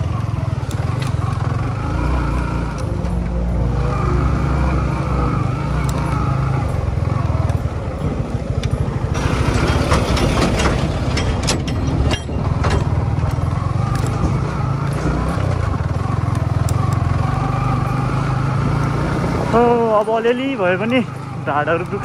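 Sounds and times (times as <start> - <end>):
motorcycle engine running: 0.0 - 22.0
knocks and rattles on rough track: 5.9 - 18.0.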